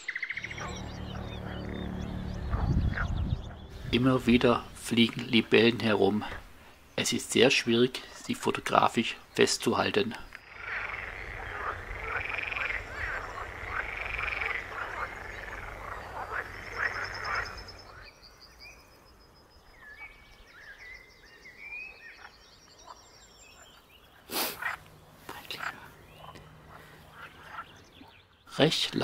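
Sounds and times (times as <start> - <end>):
high bird chirps: 0.0 - 4.6
frogs croaking: 0.0 - 28.7.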